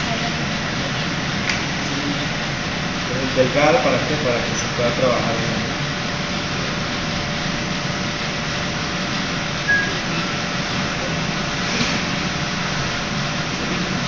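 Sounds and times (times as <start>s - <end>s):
ventilation hum and hiss: 0.0s - 14.0s.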